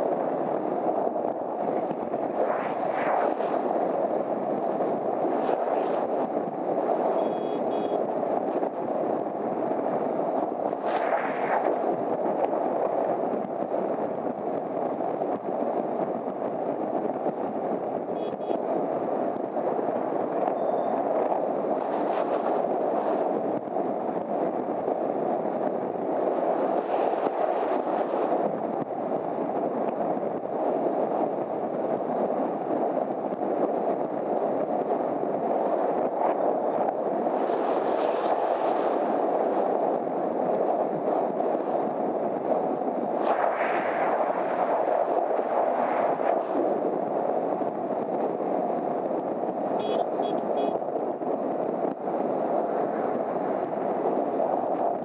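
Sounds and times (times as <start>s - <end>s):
wind rushing: 0.0s - 20.4s, 34.1s - 55.0s.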